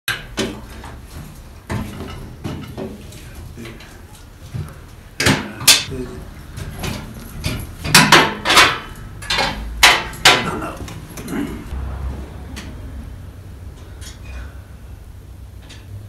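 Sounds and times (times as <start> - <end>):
sharp knocks: 7.4 - 10.6
low rumble: 11.7 - 15.5.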